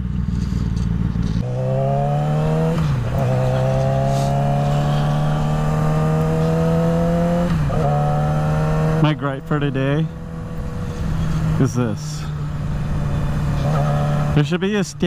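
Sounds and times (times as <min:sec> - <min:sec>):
gear upshift: 0:00.0 - 0:14.6
motorcycle engine accelerating: 0:00.0 - 0:15.0.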